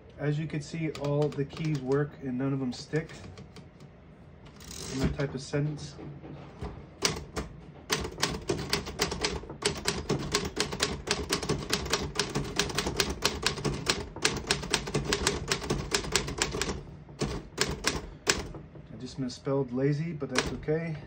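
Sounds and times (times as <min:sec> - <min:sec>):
typewriter key strikes: 0:07.0 - 0:18.6, 0:20.4 - 0:20.6.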